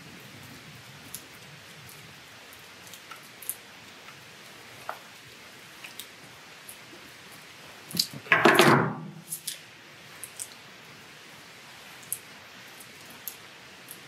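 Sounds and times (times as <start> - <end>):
tool clattering on table: 8.3 - 9.2.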